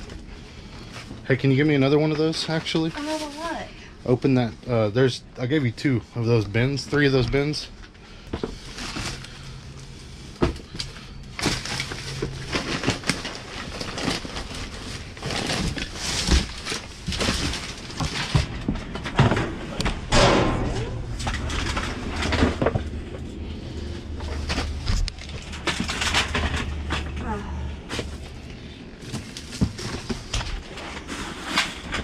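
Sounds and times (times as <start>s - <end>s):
knocks and clatters of objects: 7.8s - 32.0s
trash rustling: 8.1s - 32.0s.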